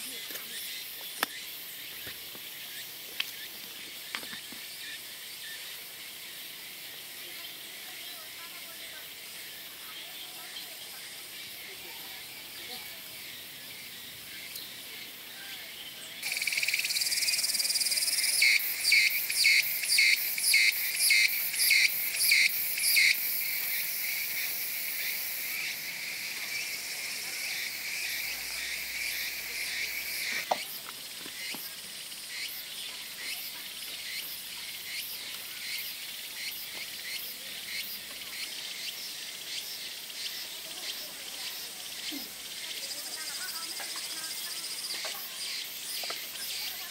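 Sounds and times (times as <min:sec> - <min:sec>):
insects chirring: 0:00.0 - 0:46.9.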